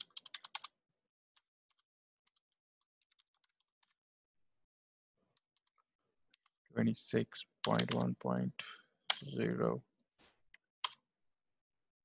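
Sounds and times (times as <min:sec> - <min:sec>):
computer keyboard typing: 0:00.0 - 0:00.7, 0:01.7 - 0:04.0, 0:07.6 - 0:08.1.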